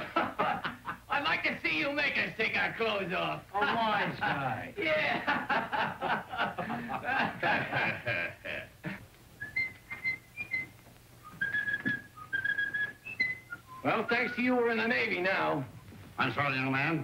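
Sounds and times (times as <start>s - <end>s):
man whistling: 9.4s - 14.6s.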